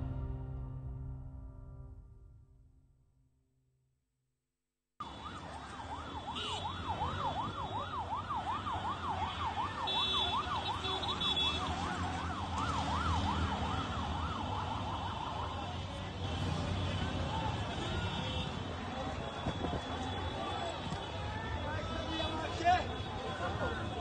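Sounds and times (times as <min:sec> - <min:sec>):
busy street rumble: 0:05.0 - 0:24.0.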